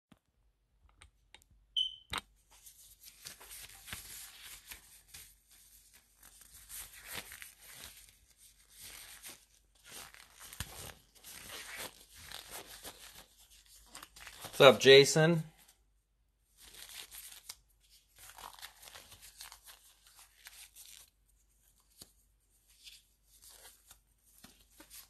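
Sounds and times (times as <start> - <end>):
short high beep: 1.8 - 2.2.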